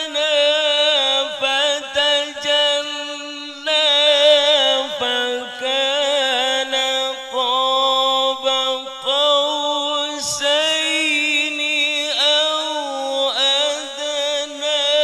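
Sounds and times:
man reciting melodically: 0.0 - 15.0.

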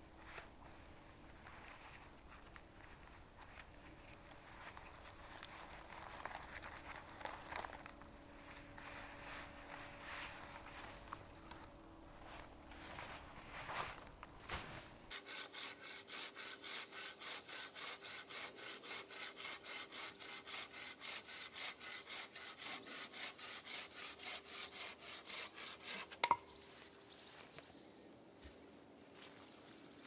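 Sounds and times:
hand saw cutting log: 15.1 - 26.4.

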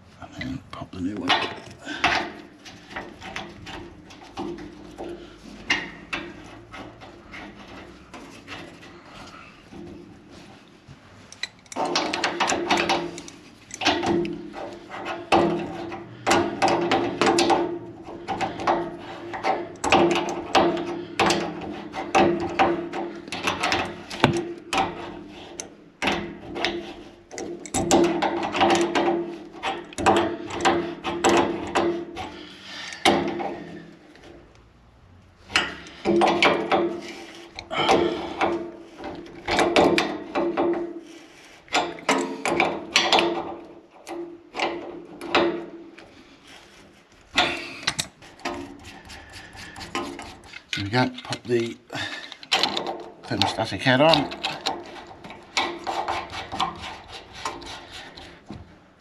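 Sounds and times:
wrench clicking and creaking: 11.2 - 34.6, 35.4 - 58.6.

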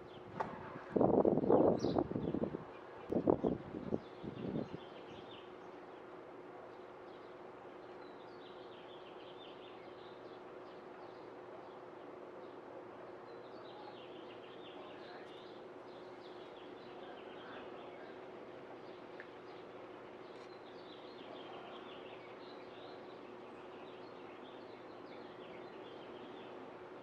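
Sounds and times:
birds chirping: 6.7 - 27.0.

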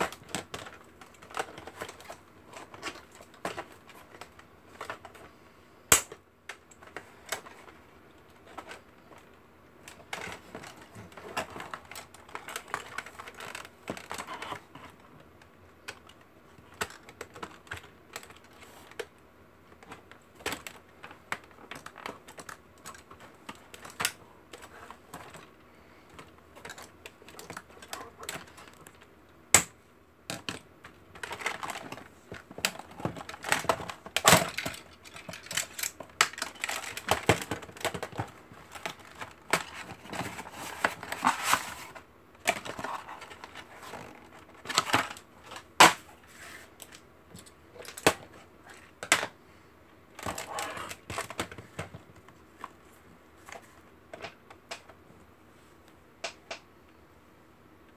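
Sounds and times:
cardboard crinkly rustles: 6.8 - 19.1, 30.8 - 49.1.

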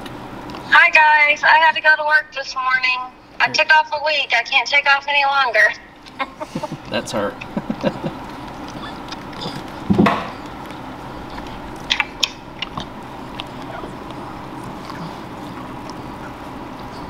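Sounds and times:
puppies suckling: 6.0 - 17.0.

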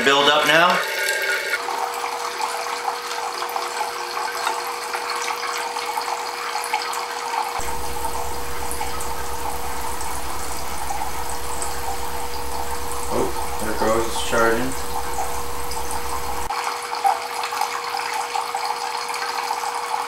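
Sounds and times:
low steady hum: 7.6 - 16.5.

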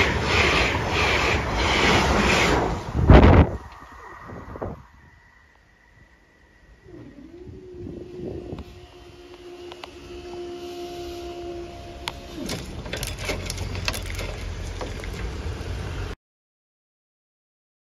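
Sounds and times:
low rumble with clicks: 2.6 - 10.4
barrier motor whining: 6.6 - 16.2.

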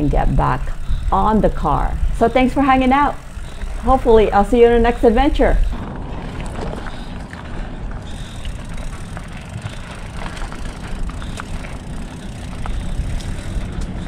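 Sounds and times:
bike clicks and rattles: 0.0 - 14.0
mountain bike rolling on dirt: 0.0 - 14.0.

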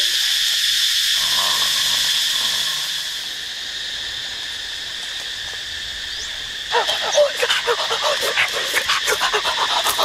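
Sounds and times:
insects droning: 0.0 - 10.0.

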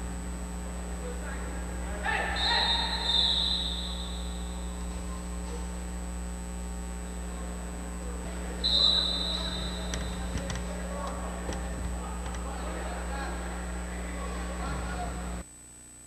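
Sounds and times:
steady low hum: 0.0 - 16.0
referee's whistle blasts: 2.1 - 5.1, 8.5 - 10.7.

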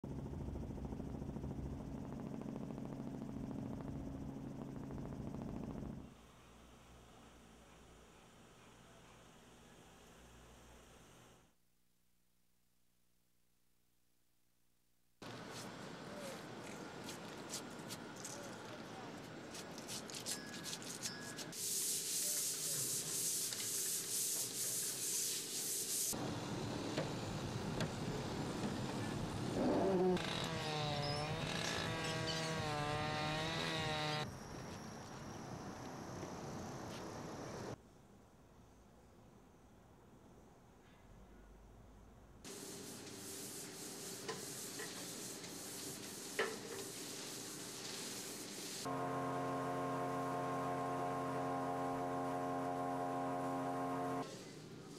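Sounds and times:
pole sander rasping on wall: 30.2 - 34.2.

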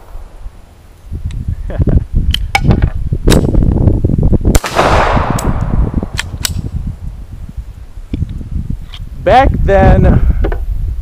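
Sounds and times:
wind rumble on microphone: 0.0 - 11.0
pistol shots: 4.6 - 6.6.

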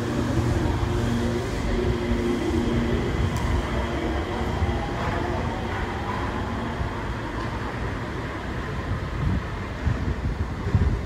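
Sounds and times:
low motor hum: 0.0 - 8.2
faint gliding whine: 0.0 - 9.0
train rumbling from inside: 0.0 - 11.0.

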